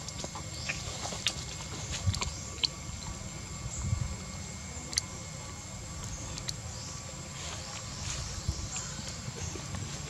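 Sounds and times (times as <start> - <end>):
monkey crunching fruit: 0.0 - 3.2
low steady rumble: 0.0 - 10.0.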